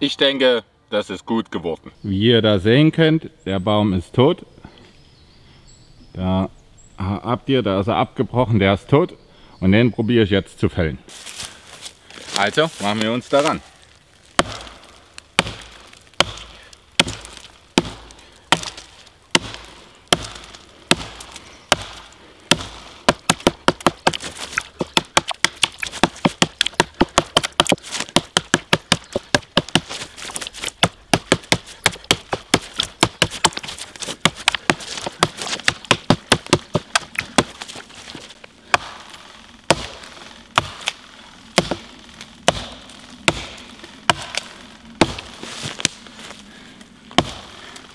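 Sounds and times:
axe chopping wood: 14.3 - 41.0, 41.6 - 46.0, 47.1 - 47.6.

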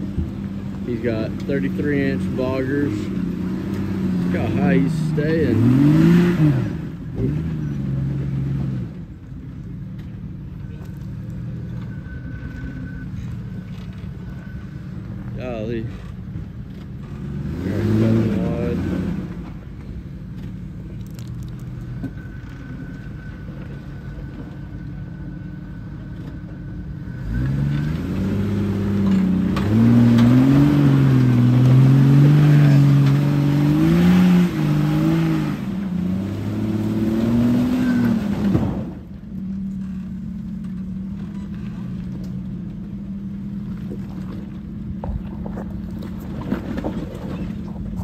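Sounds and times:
engine revving under load: 0.0 - 9.2, 11.7 - 25.5, 26.1 - 40.0.

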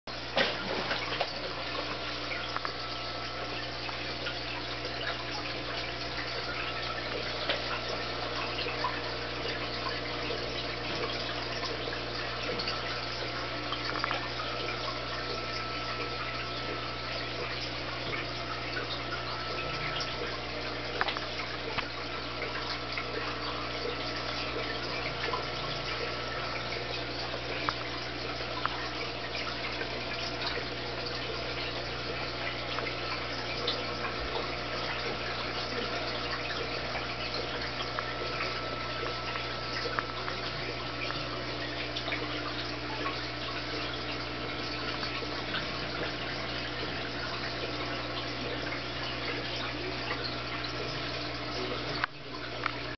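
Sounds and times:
aquarium water bubbling: 0.1 - 52.9
small pops or drips: 0.2 - 52.9.

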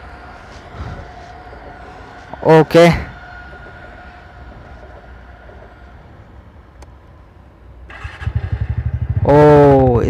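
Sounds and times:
scooter engine starting and running: 7.8 - 9.8.

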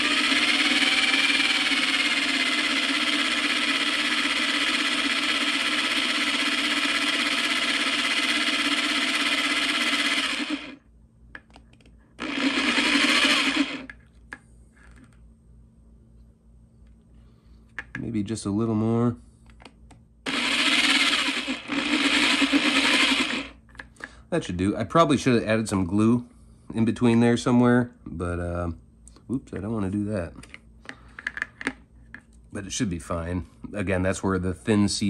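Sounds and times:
cordless drill motor running: 0.0 - 10.8, 12.2 - 14.0, 20.3 - 23.6.

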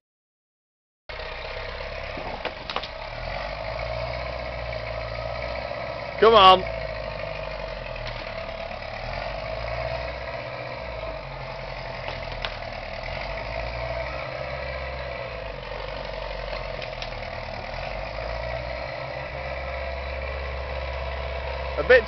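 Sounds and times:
tractor engine running: 1.1 - 22.0.

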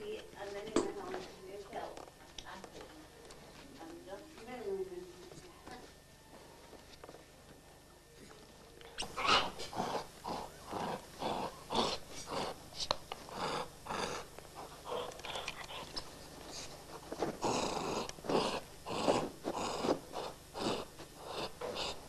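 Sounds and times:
dog making breathy sounds: 9.0 - 16.6.

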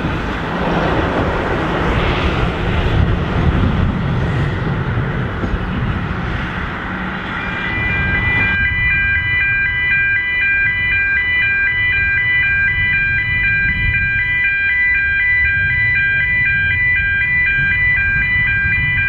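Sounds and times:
low engine rumble: 0.0 - 19.0
level-crossing alarm warbling: 7.2 - 19.0.

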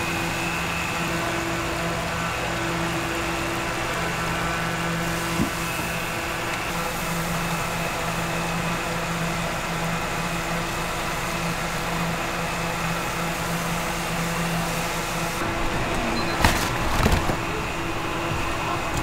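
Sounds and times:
machine hum: 0.0 - 19.0
broad rushing noise: 11.2 - 19.0.

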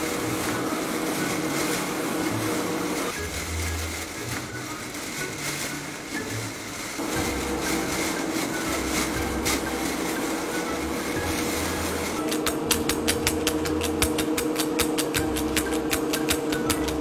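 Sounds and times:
fingers rustling through tall grass: 0.0 - 17.0.

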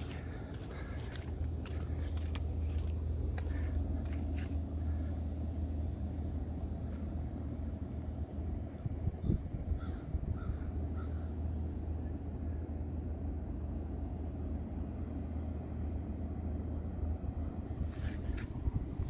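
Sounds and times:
crow cawing: 0.0 - 5.2, 9.8 - 11.4
steady low rumble: 0.0 - 19.0.

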